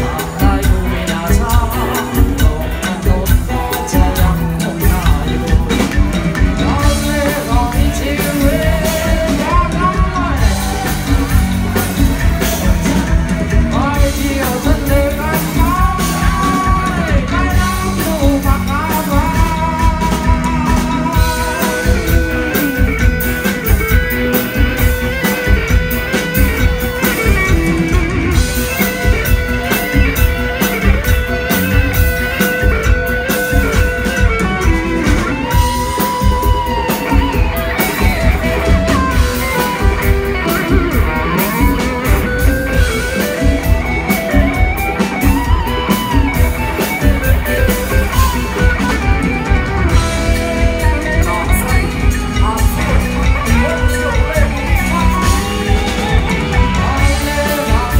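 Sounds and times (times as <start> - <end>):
live rock band: 0.0 - 57.9.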